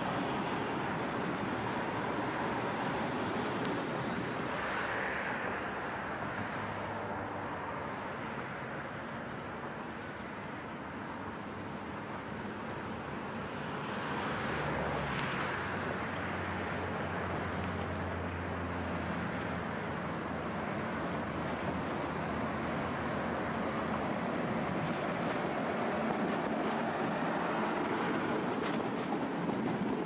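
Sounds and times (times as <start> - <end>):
diesel train engine drone: 0.0 - 30.0.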